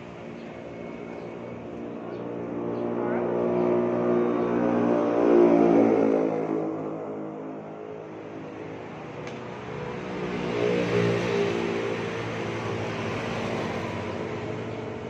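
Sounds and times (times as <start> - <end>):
vehicles passing by: 0.0 - 15.0.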